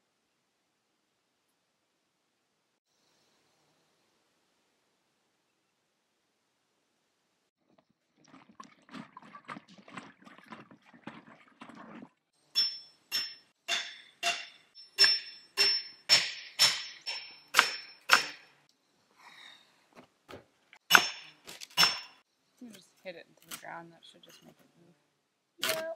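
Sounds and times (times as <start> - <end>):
hammer striking metal: 12.6 - 18.6, 20.9 - 22.2.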